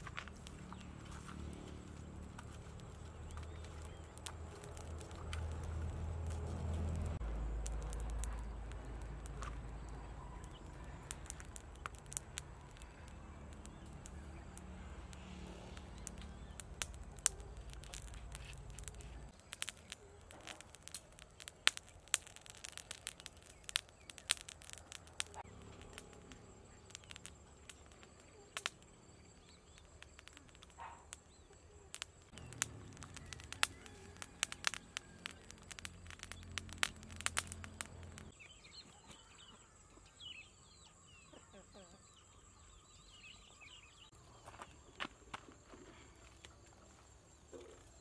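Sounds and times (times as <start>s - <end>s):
sharp pops of fire: 0.0s - 38.4s
wood fire crackling: 0.0s - 38.4s.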